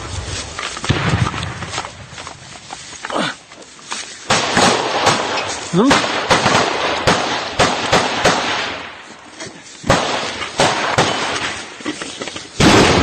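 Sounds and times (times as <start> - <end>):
small-arms gunshots: 4.3 - 9.0, 9.8 - 11.8, 12.6 - 13.0.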